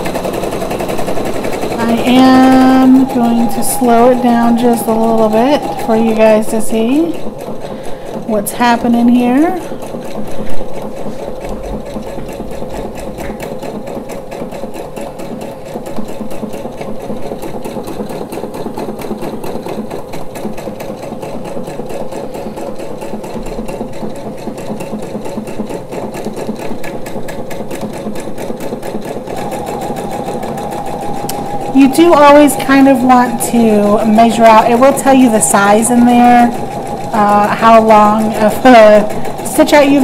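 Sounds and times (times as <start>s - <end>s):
sewing machine stitching: 0.0s - 3.0s, 6.2s - 29.6s.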